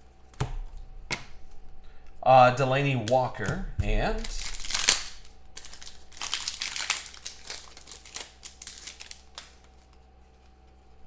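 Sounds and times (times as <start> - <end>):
foil wrapper crinkling: 4.2 - 11.0.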